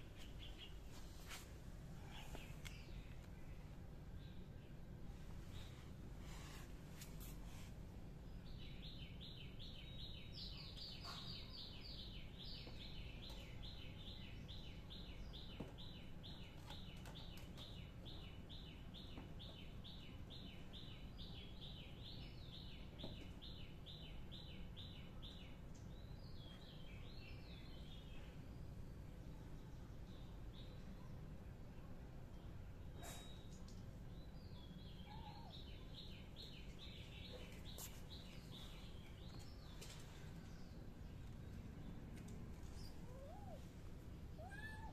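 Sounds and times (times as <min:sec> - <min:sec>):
small bird chirping: 0:33.0 - 0:42.0.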